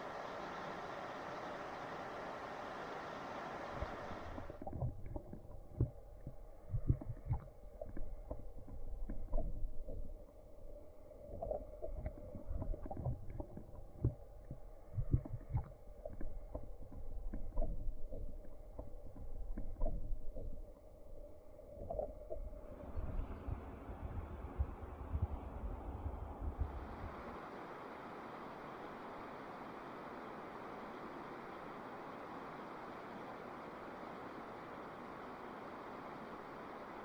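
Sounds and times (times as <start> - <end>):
river current hiss: 0.0 - 4.6, 26.9 - 37.0
small underwater clicks: 3.8 - 23.5
muffled underwater thuds and rumbles: 4.1 - 27.1.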